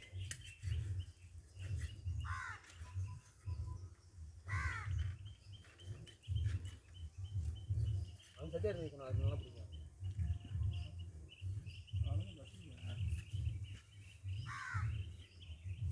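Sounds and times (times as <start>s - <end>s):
faint bird chirping: 0.0s - 15.9s
crows cawing: 2.2s - 2.9s, 4.5s - 5.2s, 14.4s - 15.2s
dull low thuds: 4.6s - 15.9s.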